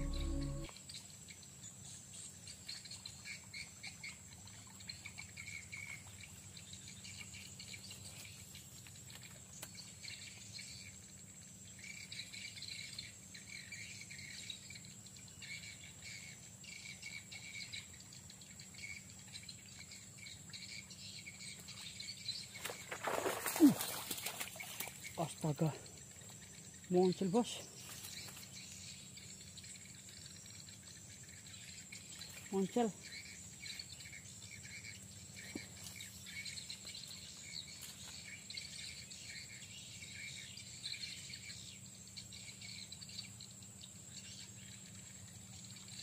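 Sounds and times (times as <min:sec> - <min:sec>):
insects chirping: 0:00.0 - 0:46.0
fish splash at surface: 0:22.6 - 0:25.0.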